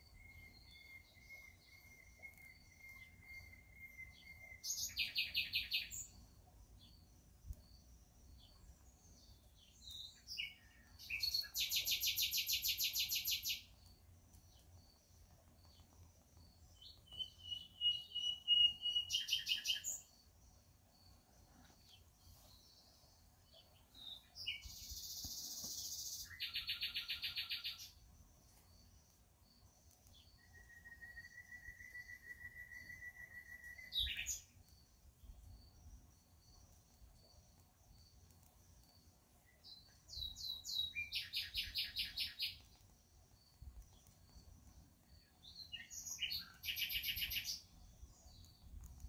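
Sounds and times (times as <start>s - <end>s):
birds trilling songs: 0.0s - 6.2s, 14.5s - 28.0s, 29.7s - 36.7s, 39.4s - 48.8s
short whistled bird notes: 0.1s - 5.6s, 17.0s - 19.9s, 30.4s - 34.4s.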